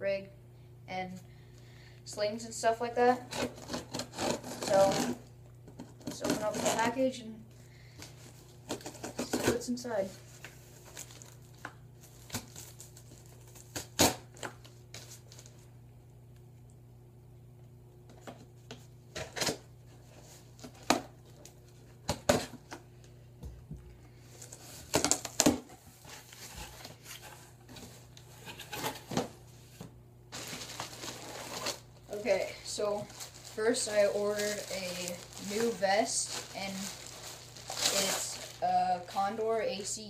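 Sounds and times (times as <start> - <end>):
scissors cutting packing tape: 3.3 - 5.2, 6.0 - 6.9, 13.6 - 14.5.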